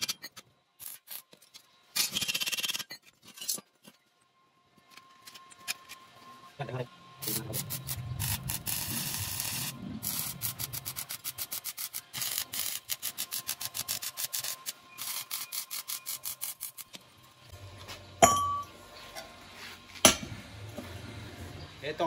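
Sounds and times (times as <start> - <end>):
welding arc crackling: 7.2 - 17.6
sharp metallic clink: 18.2 - 18.7.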